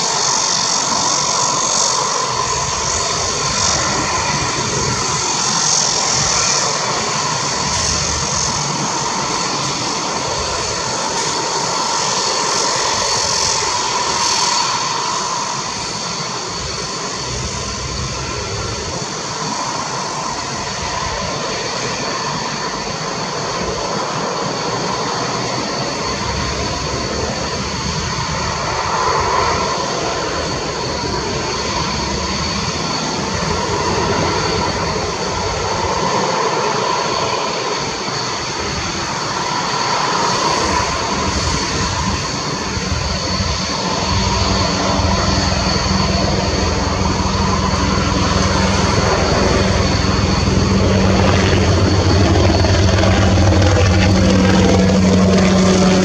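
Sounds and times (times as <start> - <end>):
jet engine turbine whine: 0.0 - 56.0
broad rushing noise: 40.0 - 56.0
low hum: 43.0 - 56.0.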